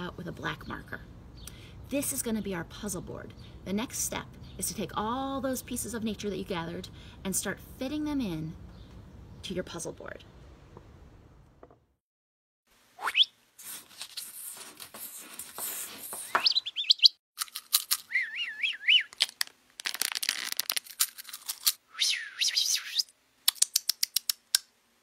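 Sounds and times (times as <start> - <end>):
quick rising whistle: 13.0 - 13.3, 18.1 - 19.1, 21.9 - 23.1
warbling bird-like whistle: 13.0 - 13.4, 16.3 - 17.2, 18.1 - 19.1, 21.9 - 23.1.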